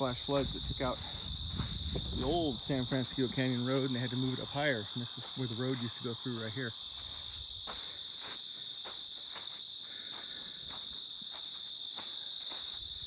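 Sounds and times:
crickets chirring: 0.0s - 13.0s
footsteps on dirt road: 0.0s - 13.0s.

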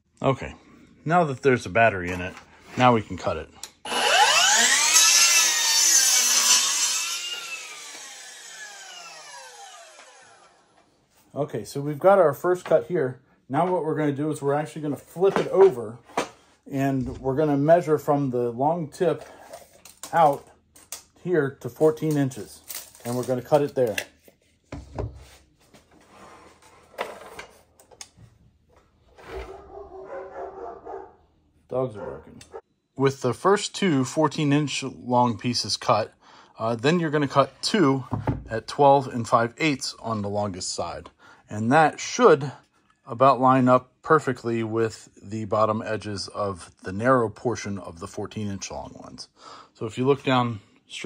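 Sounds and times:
miter saw cutting wood: 3.8s - 10.8s.

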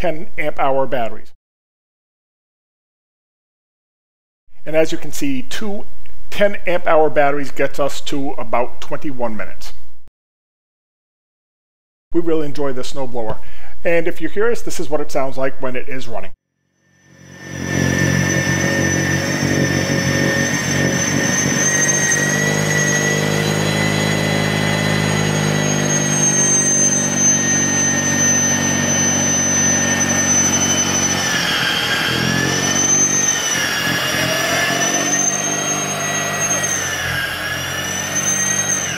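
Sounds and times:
snowblower electric whine: 16.8s - 38.9s.

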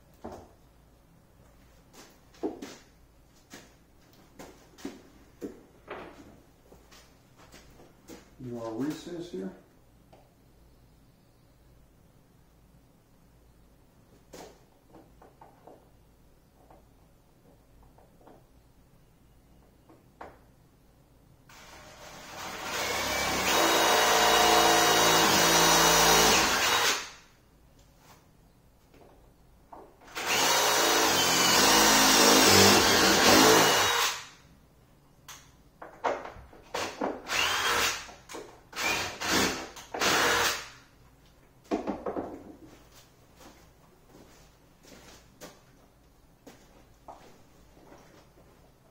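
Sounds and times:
cordless drill boring into wood: 21.5s - 27.2s, 30.1s - 34.3s, 36.8s - 38.1s, 38.7s - 40.8s.

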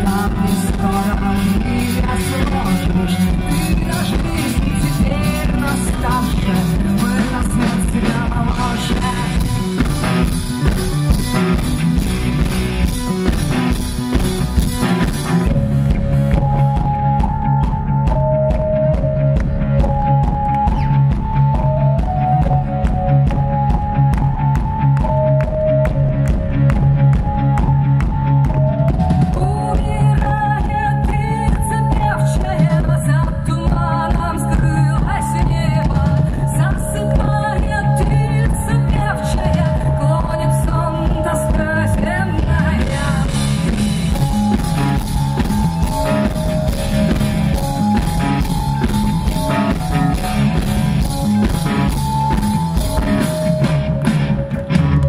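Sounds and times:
woman singing: 0.0s - 10.3s, 29.3s - 44.2s
drum kit beat: 0.0s - 55.0s
melody line over band: 0.0s - 55.0s
rock band playing live: 0.0s - 55.0s.

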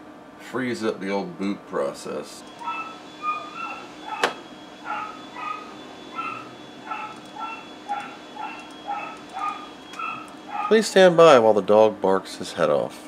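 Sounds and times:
vacuum cleaner running: 1.7s - 12.4s
dog barking high-pitched: 2.6s - 10.8s
sharp click: 4.2s - 4.4s.

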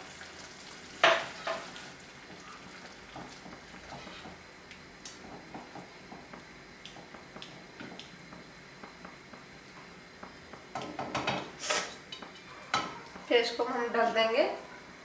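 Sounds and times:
spatula scraping a pot: 3.8s - 4.4s.

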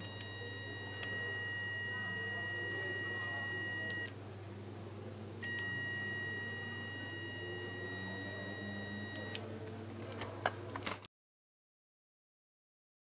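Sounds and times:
high-pitched multimeter beep: 0.0s - 4.1s, 5.4s - 9.4s.

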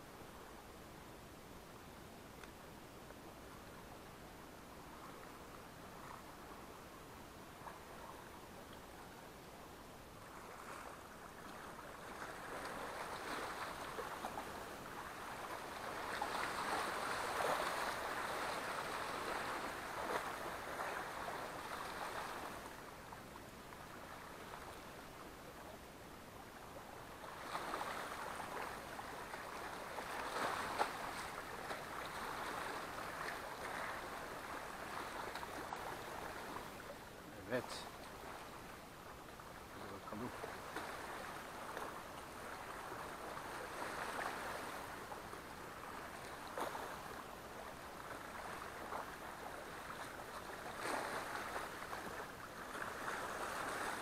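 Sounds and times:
sea waves lapping on rocks: 10.3s - 22.8s, 26.8s - 38.7s, 39.6s - 54.0s.

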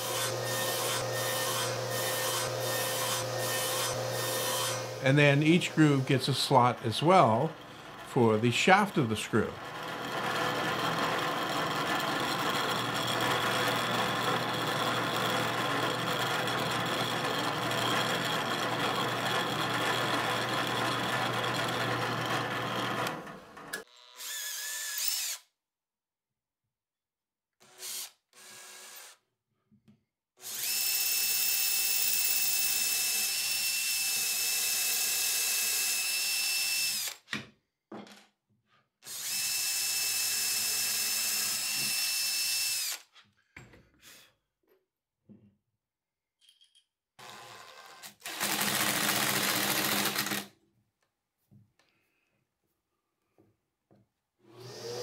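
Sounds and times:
drill press boring into plywood: 0.0s - 25.4s, 30.4s - 37.2s, 39.0s - 43.0s, 47.2s - 50.5s, 54.5s - 55.0s
cordless drill whining: 9.7s - 25.5s, 30.4s - 37.3s, 39.0s - 43.1s, 47.2s - 50.5s, 54.5s - 55.0s.

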